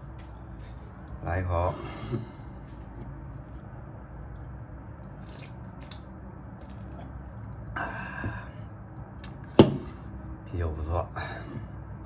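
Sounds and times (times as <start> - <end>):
faint gulps: 6.6 - 8.5.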